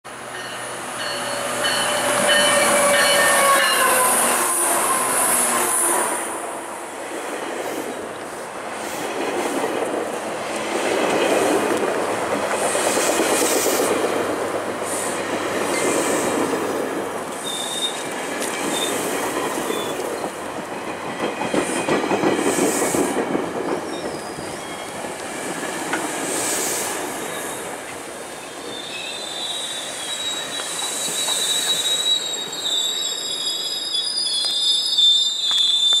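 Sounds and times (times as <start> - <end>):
train coaches rumbling: 0.1 - 36.0
brake squeals: 17.4 - 18.1, 28.4 - 36.0.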